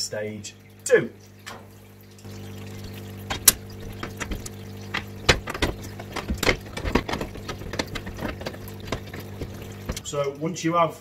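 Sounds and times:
hand tools clicking and knocking metal: 0:03.3 - 0:10.1.

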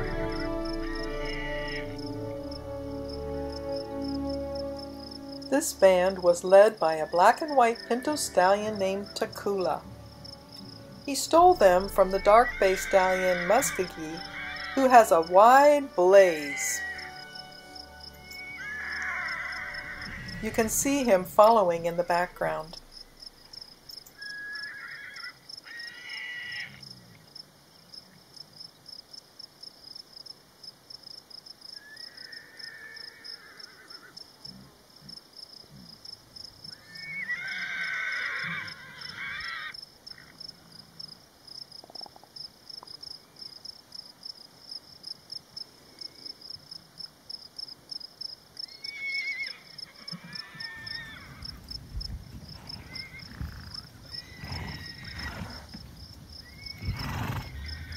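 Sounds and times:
animal calls: 0:00.6 - 0:02.0, 0:11.7 - 0:17.4, 0:18.2 - 0:21.2, 0:24.1 - 0:27.2, 0:36.7 - 0:40.4, 0:52.6 - 0:55.8, 0:56.4 - 0:57.9.

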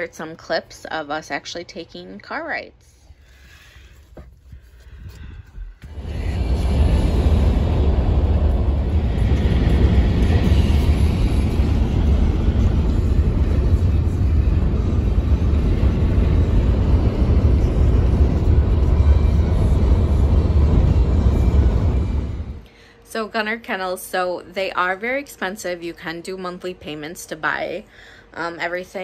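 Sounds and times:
road and engine noise in car: 0:05.9 - 0:22.6.

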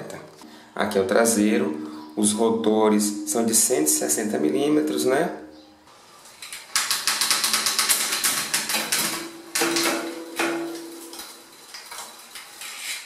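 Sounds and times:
bicycle freehub ratchet clicking: 0:06.4 - 0:09.2, 0:11.1 - 0:13.0.

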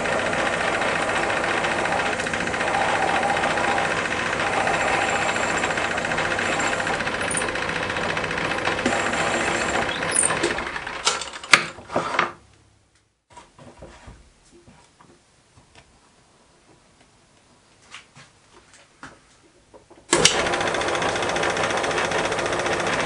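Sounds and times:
drill cutting metal: 0:00.0 - 0:10.9
metal lathe running: 0:00.0 - 0:11.1, 0:20.2 - 0:23.0.

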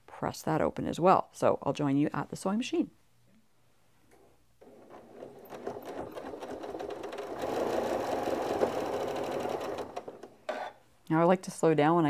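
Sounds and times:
sewing machine stitching: 0:04.6 - 0:10.8.

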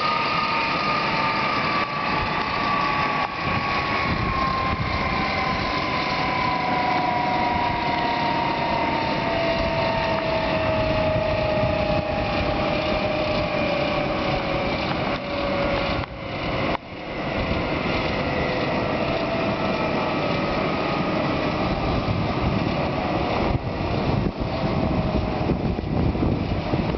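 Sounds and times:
jet engines rushing and whining: 0:00.0 - 0:26.9.

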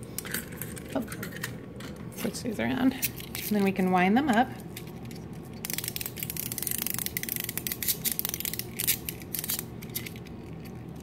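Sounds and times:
clockwork toy ratchet clicks: 0:05.6 - 0:10.1.

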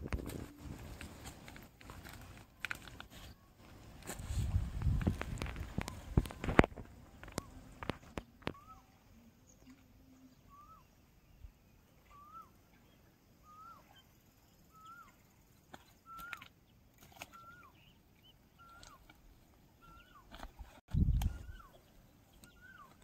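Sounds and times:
bird calling: 0:05.4 - 0:23.0.

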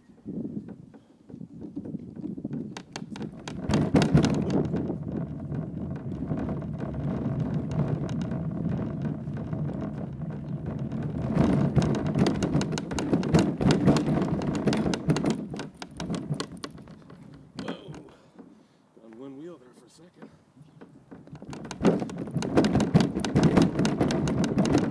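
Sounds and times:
cart wheels rolling: 0:00.0 - 0:18.5, 0:19.3 - 0:24.9
cart and hull rattling: 0:00.0 - 0:18.6, 0:19.3 - 0:24.9.

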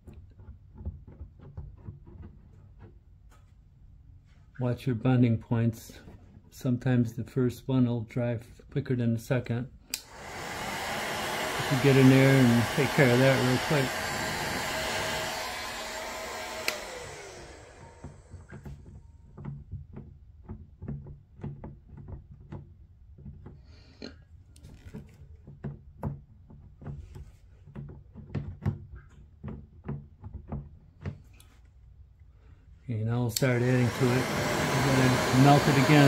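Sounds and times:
hand tool tapping plastic: 0:00.0 - 0:03.5, 0:17.9 - 0:23.7, 0:24.5 - 0:31.7
heat gun switch click: 0:09.9 - 0:10.3, 0:13.6 - 0:17.2, 0:33.3 - 0:36.0
fan winding down whine: 0:09.9 - 0:18.6, 0:33.2 - 0:36.0
heat gun blowing: 0:09.9 - 0:18.6, 0:33.2 - 0:36.0.

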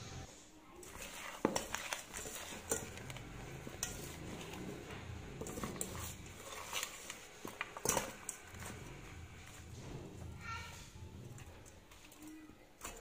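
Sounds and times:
soft handling rustles: 0:00.7 - 0:13.0.

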